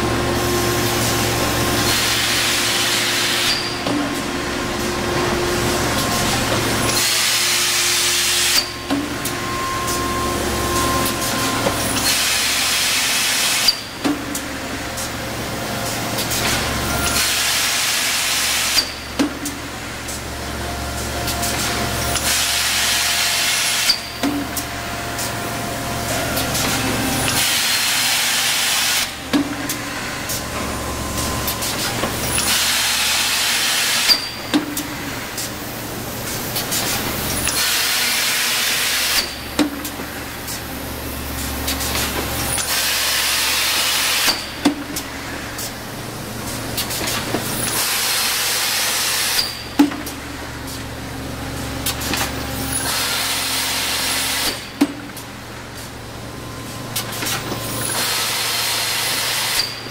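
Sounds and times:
loud air hiss: 0.4s - 8.8s, 17.2s - 20.2s, 21.0s - 39.5s, 42.6s - 44.6s, 52.8s - 54.8s, 57.7s - 59.8s.

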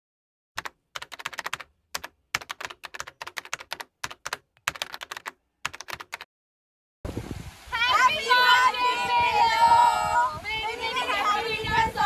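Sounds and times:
keyboard key clicks: 0.6s - 6.3s.

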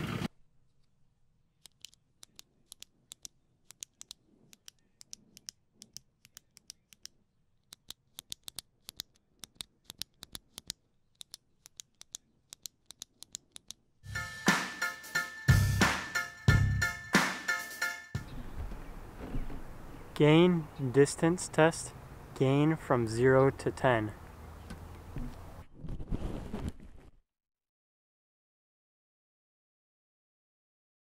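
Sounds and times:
retractable pen clicking: 1.6s - 13.8s.

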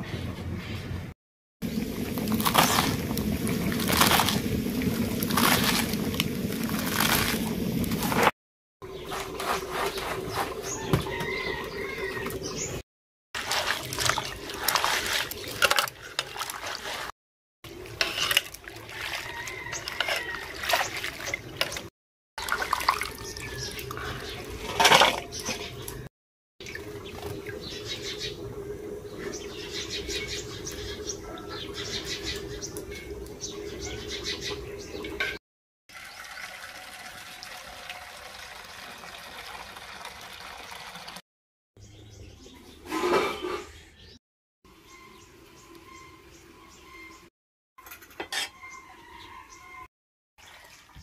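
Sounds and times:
water splashing and dripping: 1.6s - 8.3s, 13.4s - 29.4s, 30.1s - 41.2s
hands swishing greens in water: 13.4s - 17.1s, 18.0s - 21.8s.

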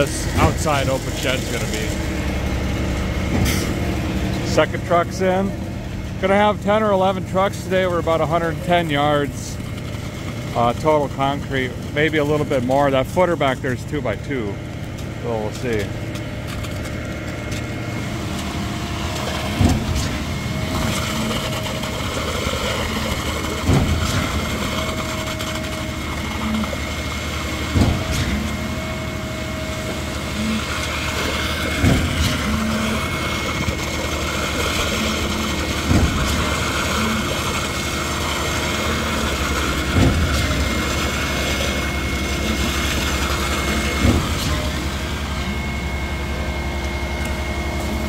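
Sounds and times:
concrete flowing from hose: 0.0s - 13.6s, 17.7s - 46.5s
concrete pump running: 0.0s - 48.0s
loud pump thump: 3.3s - 3.9s, 19.5s - 22.3s, 22.9s - 25.4s, 27.6s - 29.3s, 31.4s - 33.8s, 34.4s - 45.7s.

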